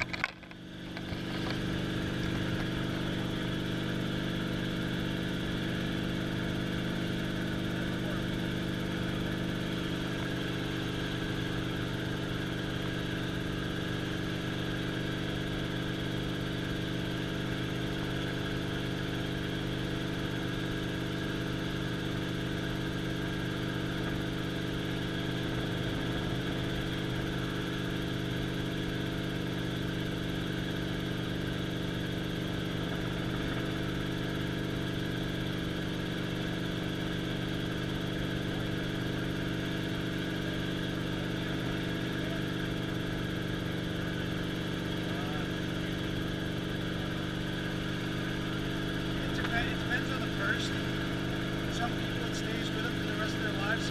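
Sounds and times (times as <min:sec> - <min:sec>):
helicopter engine and rotor drone: 0:00.0 - 0:53.9.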